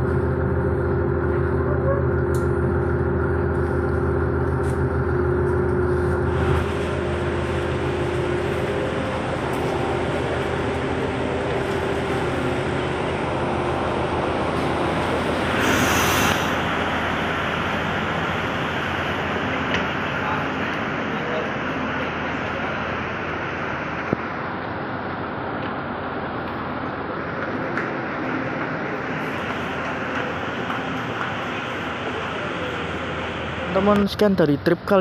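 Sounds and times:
train engine droning: 0.0 - 35.0
train rolling noise: 0.0 - 35.0
loud hiss: 15.4 - 17.0.

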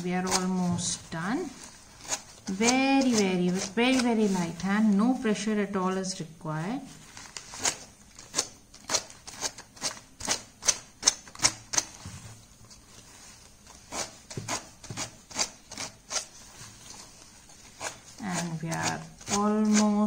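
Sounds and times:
sandpaper strokes on plate rim: 13.0 - 20.0.

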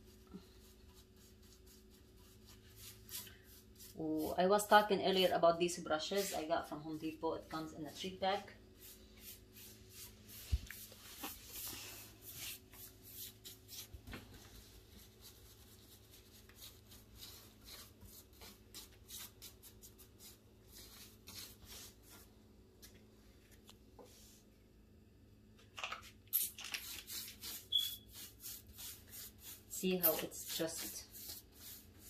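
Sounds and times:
paintbrush strokes on wood: 6.0 - 22.3.

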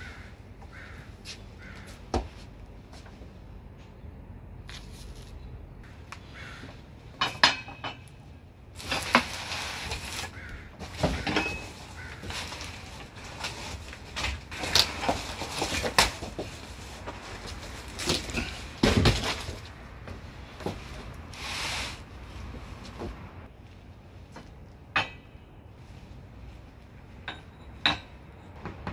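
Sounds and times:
steel plates clanking: 11.1 - 13.2.

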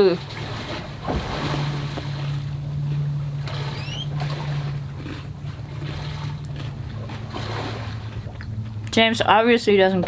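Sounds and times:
boat motor humming: 0.0 - 10.0
short rising squeaks: 2.8 - 4.8.

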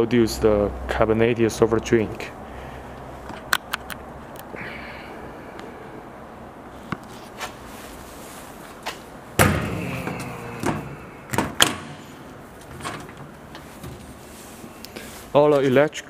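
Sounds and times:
metal door bang: 9.4 - 12.2
door and latch clanking: 9.4 - 13.3.

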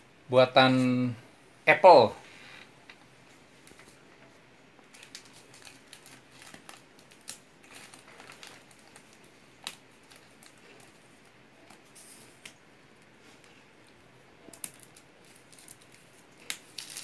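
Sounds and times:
plastic wrap crinkling: 4.8 - 12.4, 14.4 - 17.0.

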